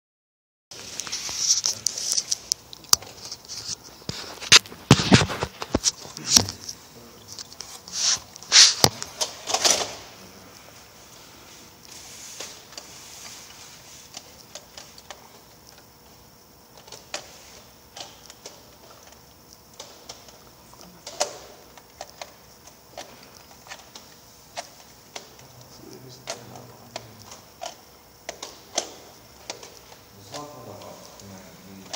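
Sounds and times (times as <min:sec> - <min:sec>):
fingers scraping and tapping microphone: 0:01.1 - 0:09.0.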